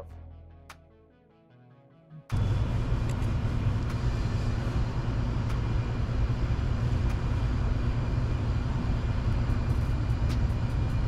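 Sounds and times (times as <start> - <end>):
low machine hum: 2.3 - 11.0.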